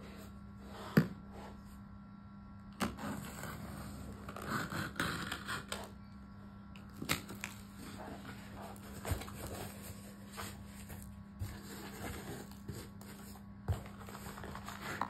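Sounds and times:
low electrical hum: 0:00.0 - 0:15.0
box cutter slicing packing tape: 0:04.3 - 0:05.9.

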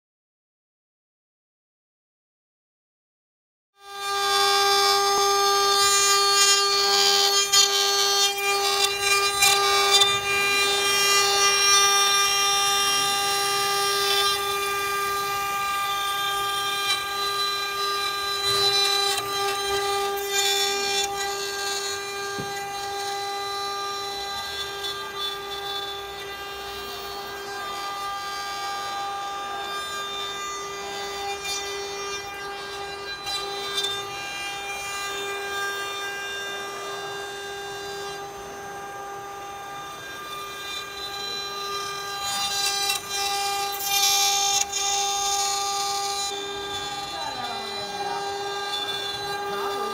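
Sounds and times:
router bits cutting wood: 0:03.8 - 0:49.9
router spindles high whine: 0:03.8 - 0:49.9.

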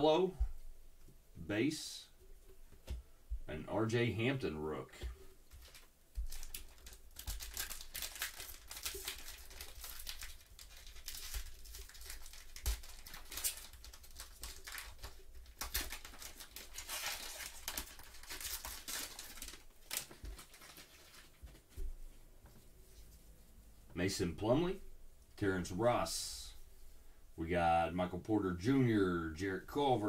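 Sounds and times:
foil wrapper crinkling: 0:05.5 - 0:21.4.

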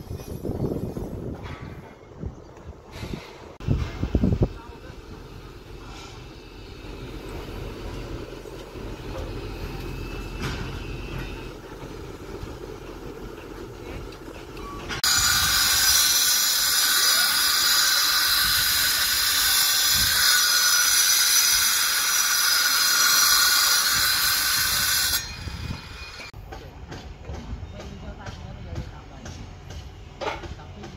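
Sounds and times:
low engine rumble: 0:03.5 - 0:15.0.

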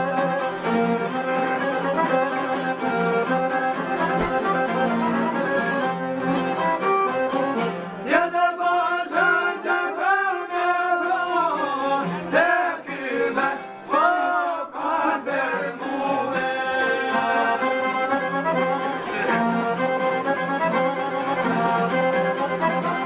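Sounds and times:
long-necked lutes: 0:00.0 - 0:08.1, 0:15.8 - 0:23.0
accordion: 0:00.0 - 0:23.0
man singing: 0:08.0 - 0:19.9.

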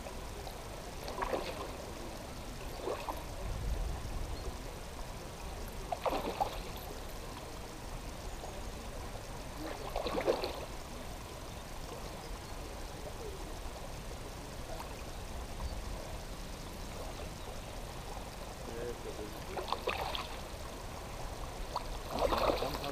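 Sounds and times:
fish splashing in water: 0:01.0 - 0:01.8, 0:05.9 - 0:06.9, 0:09.7 - 0:10.8, 0:19.4 - 0:20.5, 0:21.6 - 0:22.9.

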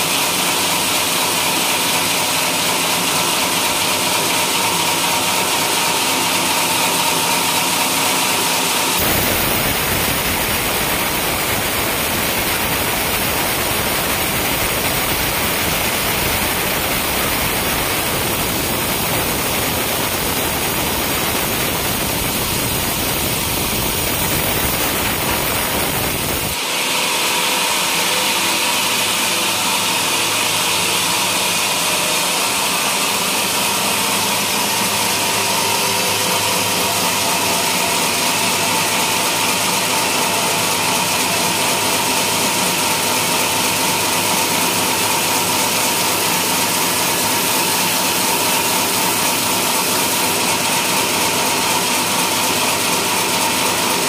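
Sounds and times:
band saw cutting wood: 0:01.3 - 0:36.2.

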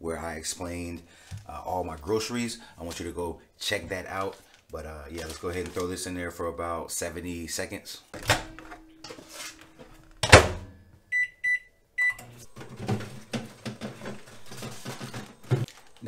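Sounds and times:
food box rustling: 0:03.9 - 0:06.1, 0:12.4 - 0:16.0
microwave door banging shut: 0:08.2 - 0:08.9, 0:10.2 - 0:10.7
microwave keypad beeps: 0:11.1 - 0:12.3.

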